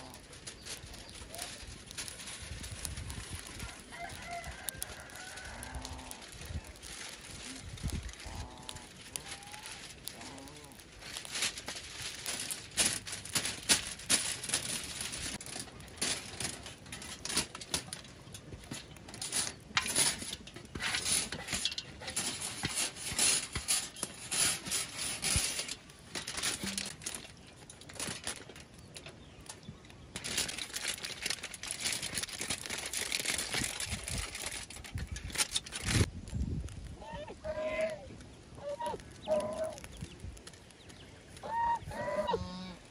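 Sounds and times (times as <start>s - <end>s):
aluminium foil crinkling: 0.0s - 42.9s.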